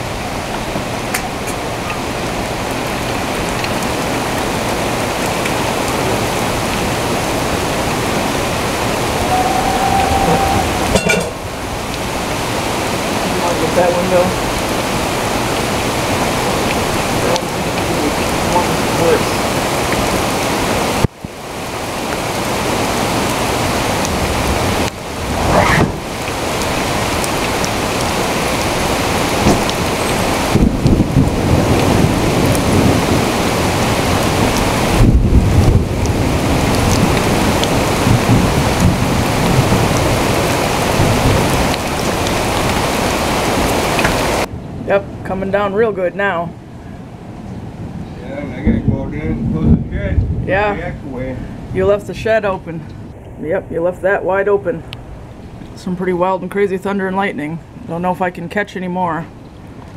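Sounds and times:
rain falling: 0:00.0 - 0:59.9
thunder rumbling: 0:06.0 - 0:21.0, 0:23.0 - 0:45.1, 0:47.7 - 0:51.0
steady tone: 0:08.7 - 0:12.2.

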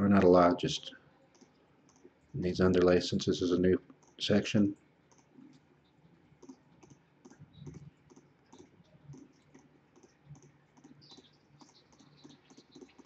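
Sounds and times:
faint mouse clicks: 0:01.3 - 0:02.1, 0:03.9 - 0:04.2, 0:05.1 - 0:05.6, 0:06.4 - 0:13.0.

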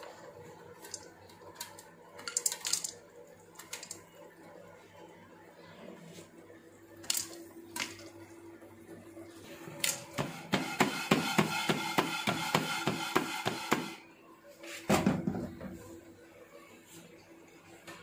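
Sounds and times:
popcorn popping: 0:00.0 - 0:04.3, 0:09.8 - 0:14.1
popcorn clattering in shaken pot: 0:00.6 - 0:04.3.

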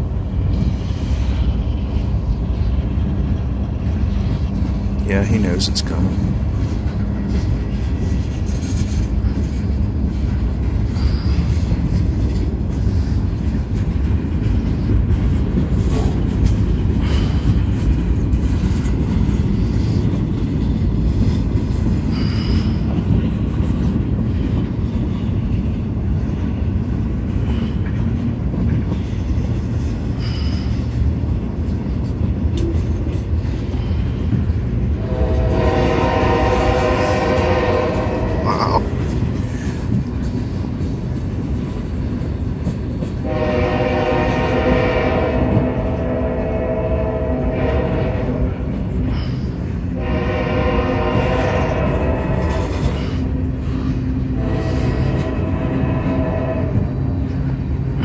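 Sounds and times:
train rumbling past on rails: 0:00.0 - 0:58.0
distant locomotive horn: 0:34.9 - 0:38.9, 0:43.2 - 0:49.3, 0:49.9 - 0:53.4, 0:54.2 - 0:57.4.

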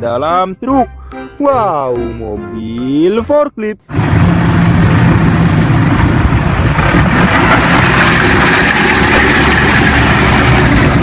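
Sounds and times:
forklift engine running: 0:03.9 - 0:11.0.

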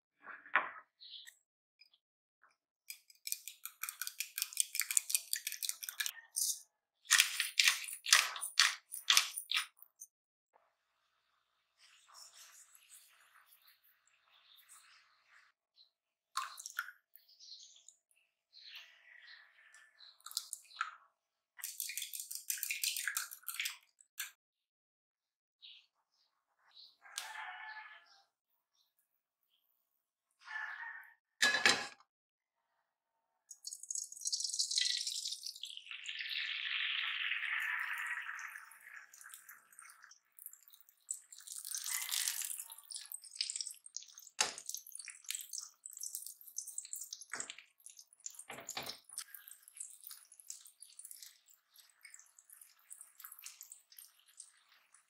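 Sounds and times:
eggs sizzling in a frying pan: 0:33.5 - 0:55.0
soft wet stirring: 0:38.6 - 0:55.0.

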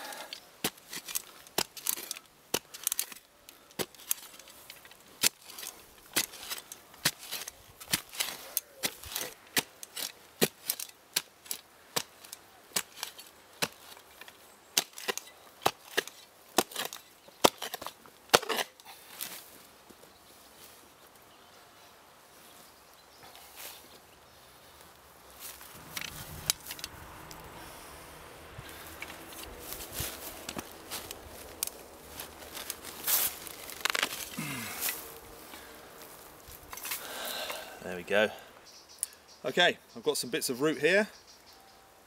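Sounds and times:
spade scraping: 0:00.1 - 0:19.6, 0:24.7 - 0:37.8
spade chopping into dry soil: 0:00.6 - 0:19.4.

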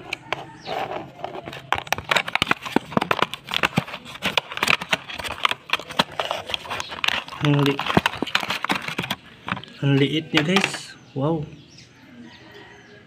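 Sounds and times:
plastic crinkling: 0:01.4 - 0:09.8.

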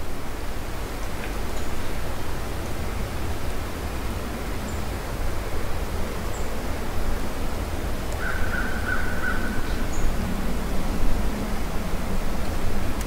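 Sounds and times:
harsh crow-like call: 0:08.2 - 0:09.7.

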